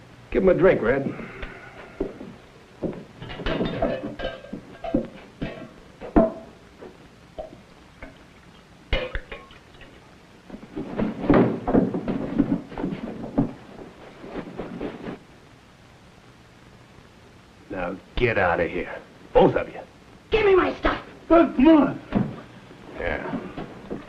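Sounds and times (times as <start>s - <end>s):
tin cups knocking on table: 2.8s - 6.5s
clothes rustling: 10.4s - 15.3s
scuffling: 10.5s - 15.2s.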